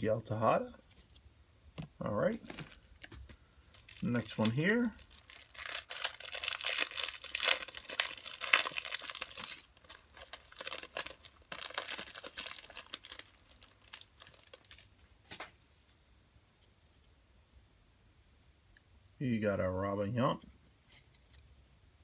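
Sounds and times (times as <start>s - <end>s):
foil wrapper tearing and crinkling: 2.4s - 14.9s.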